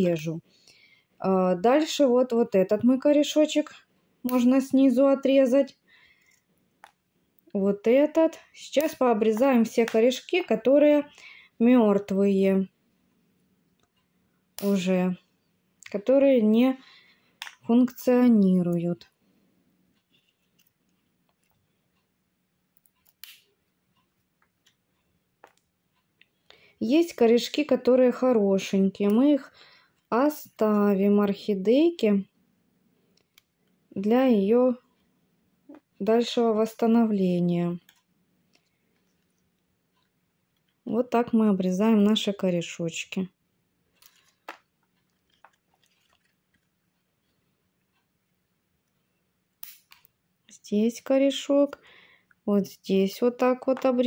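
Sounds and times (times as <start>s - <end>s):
scissors snipping roots: 14.6s - 14.9s, 23.0s - 23.4s, 49.6s - 50.1s.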